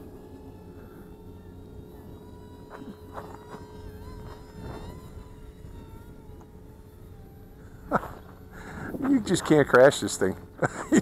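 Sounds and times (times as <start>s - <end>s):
small electric motors whining: 0.0s - 11.0s
wind rumbling on microphone: 2.0s - 9.8s.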